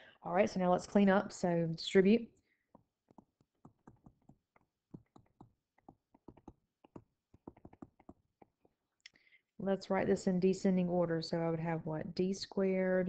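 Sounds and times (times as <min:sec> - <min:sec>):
stylus tapping on tablet screen: 0:02.6 - 0:08.9.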